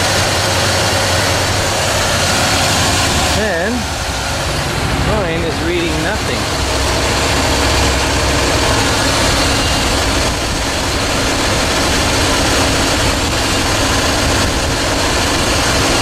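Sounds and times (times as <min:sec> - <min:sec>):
compressor turning: 0:00.0 - 0:16.0
truck engine idling: 0:00.0 - 0:16.0.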